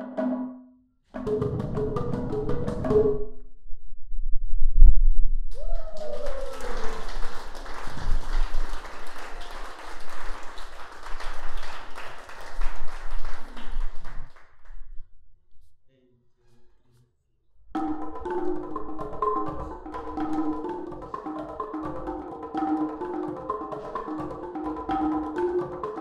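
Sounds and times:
audience applauding: 0:05.5 - 0:14.8
wooden xylophone notes: 0:17.8 - 0:26.0.

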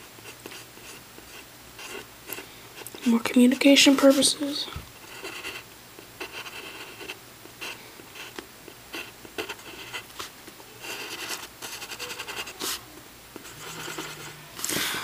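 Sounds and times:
pencil scratching on paper: 0:00.2 - 0:02.1, 0:02.8 - 0:05.6, 0:06.2 - 0:12.8, 0:13.4 - 0:15.0.

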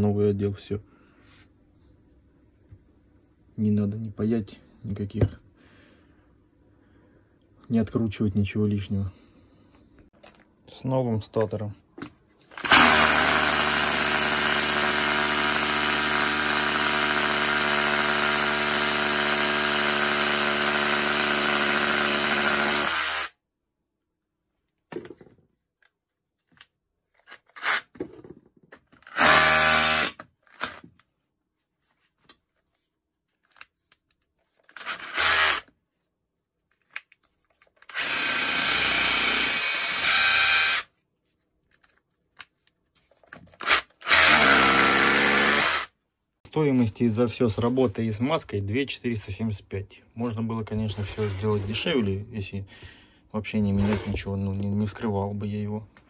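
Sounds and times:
rotary hammer motor running: 0:12.5 - 0:23.3, 0:29.1 - 0:30.7, 0:34.7 - 0:35.7, 0:37.8 - 0:40.8, 0:43.6 - 0:45.9.

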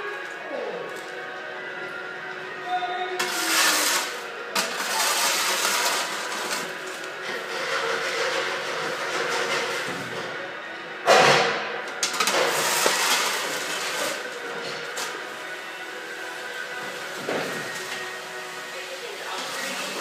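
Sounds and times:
music playing: 0:00.0 - 0:20.0
push broom scraping concrete: 0:03.2 - 0:10.2, 0:12.0 - 0:15.5, 0:16.8 - 0:20.0.

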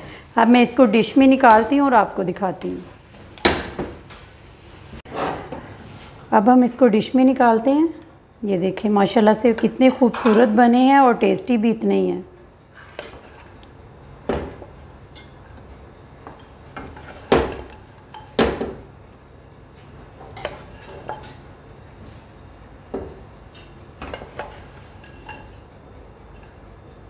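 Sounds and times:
wooden spatula scraping a wok: 0:05.0 - 0:06.3, 0:12.7 - 0:13.6.

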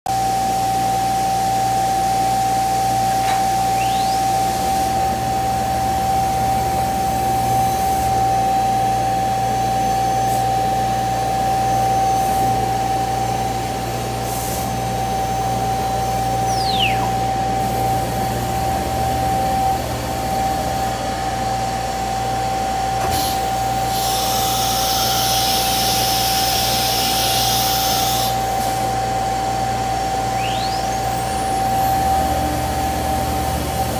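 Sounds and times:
cnc router high whine: 0:00.1 - 0:33.9
whistling pitch glides: 0:03.6 - 0:05.0, 0:16.2 - 0:17.6, 0:30.2 - 0:32.4.

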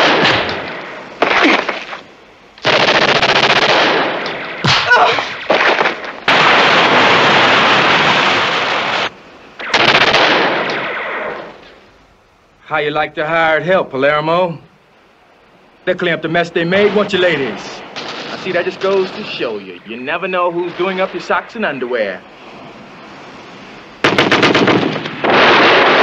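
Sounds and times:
submachine gun automatic fire: 0:02.6 - 0:04.2, 0:09.6 - 0:11.2, 0:24.0 - 0:26.0.

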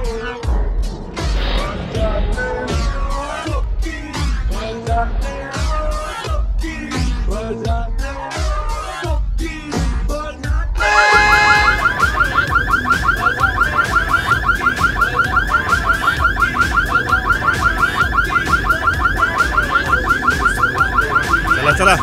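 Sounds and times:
car alarm warbling: 0:10.8 - 0:22.0.

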